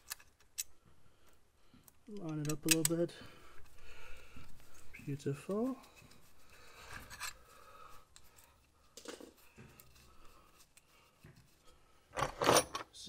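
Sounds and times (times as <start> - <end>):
gloved hands rubbing: 3.5 - 12.0.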